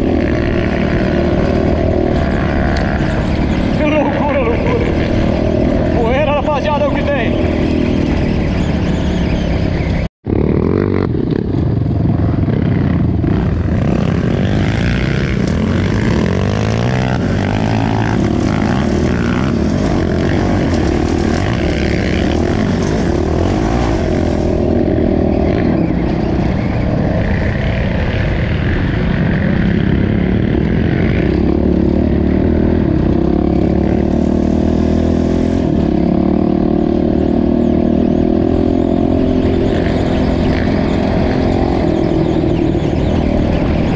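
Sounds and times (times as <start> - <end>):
dirt bike engine revving: 0.0 - 43.9.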